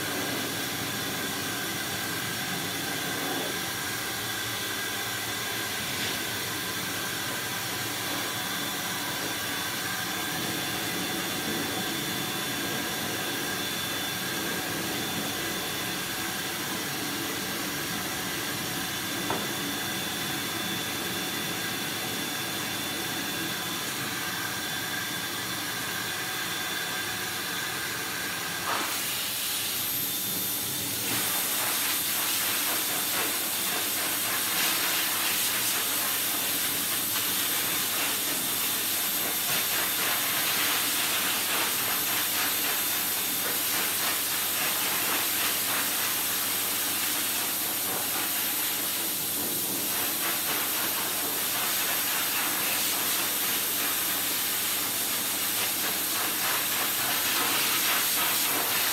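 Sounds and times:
pet dryer blowing air: 0:00.0 - 0:58.9.

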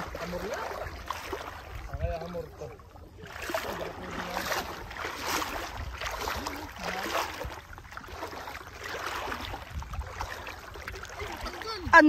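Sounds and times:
wind rumble on microphone: 0:00.0 - 0:02.8, 0:03.4 - 0:12.0
sea water lapping and sloshing: 0:00.0 - 0:12.0.

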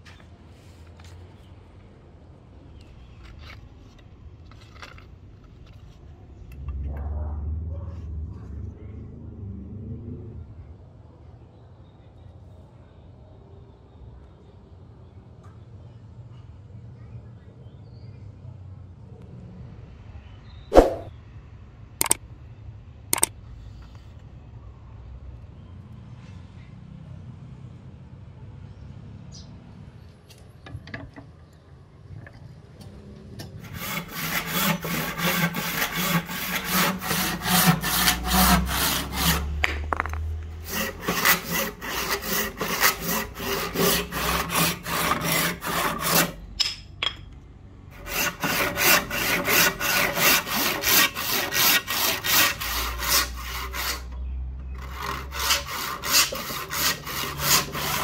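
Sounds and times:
hand saw cutting wood: 0:33.6 - 0:46.5, 0:48.0 - 0:58.0.

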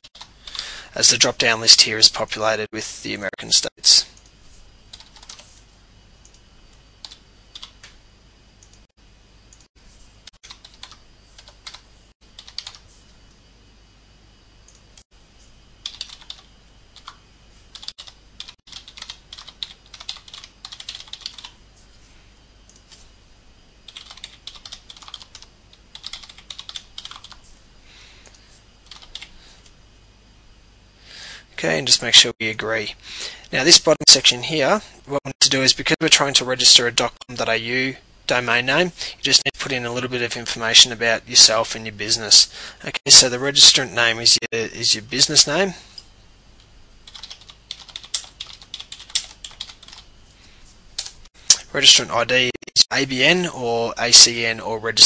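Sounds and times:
typing on a computer keyboard: 0:04.9 - 0:05.5, 0:10.4 - 0:11.8, 0:12.4 - 0:12.8, 0:15.8 - 0:21.6, 0:23.9 - 0:27.4, 0:28.3 - 0:29.3, 0:47.1 - 0:50.0.

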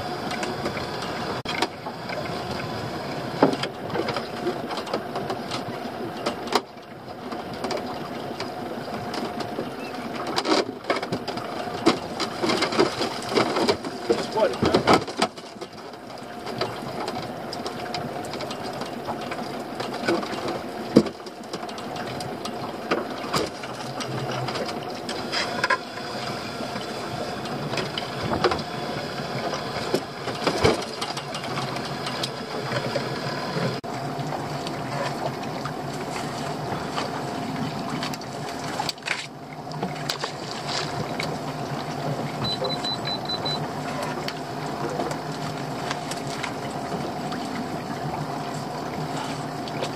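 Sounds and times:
boat engine running: 0:00.0 - 0:49.9
knocks and rattles of lobster pot: 0:10.2 - 0:19.2, 0:29.8 - 0:33.8.

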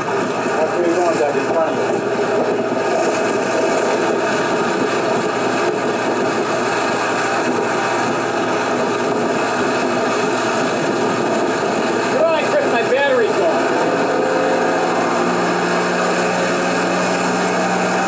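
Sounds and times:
boat engine running: 0:00.0 - 0:18.0
rushing water: 0:00.0 - 0:18.0
rushing wind: 0:00.0 - 0:18.0.

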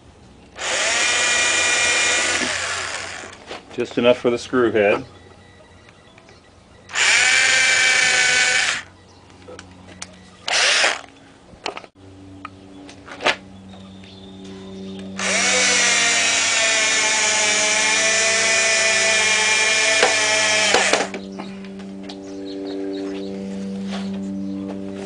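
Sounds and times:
electric drill running: 0:00.6 - 0:03.4, 0:06.9 - 0:08.9, 0:10.5 - 0:11.1, 0:15.2 - 0:21.1.

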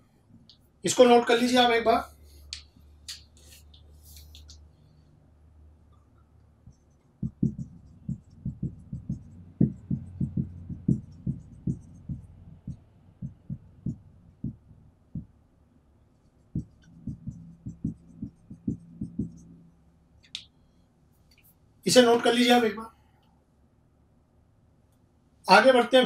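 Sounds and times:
marker writing on whiteboard: 0:06.6 - 0:14.7, 0:16.2 - 0:19.6.

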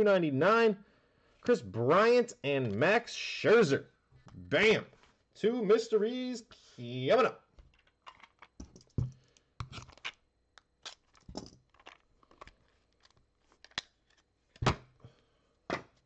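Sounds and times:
cards being handled: 0:10.8 - 0:14.6.

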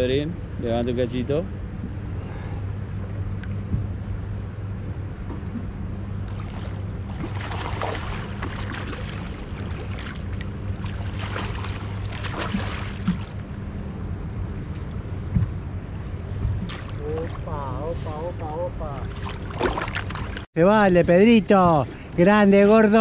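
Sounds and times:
steady low hum: 0:00.0 - 0:23.0
water splashing: 0:06.2 - 0:13.8, 0:16.4 - 0:20.5.

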